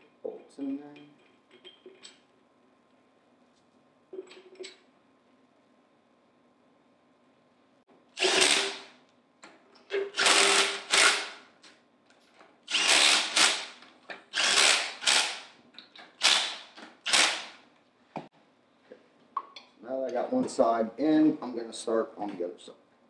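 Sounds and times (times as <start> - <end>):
impact driver bursts: 8.2 - 8.9, 10.0 - 11.4, 12.7 - 15.5, 16.2 - 17.6.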